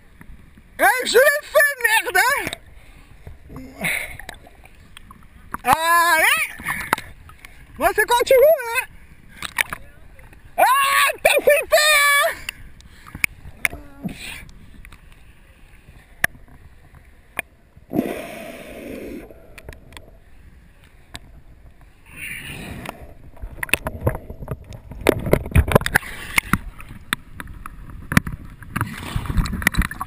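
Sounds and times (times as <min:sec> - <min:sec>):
water sloshing and gurgling: 0:00.0 - 0:30.0
underwater churning: 0:15.8 - 0:30.0.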